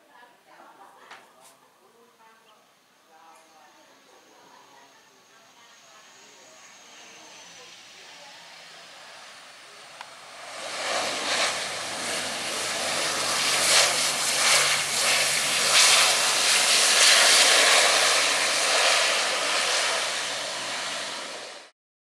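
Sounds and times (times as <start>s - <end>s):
turboprop engines and propellers: 5.5s - 21.8s.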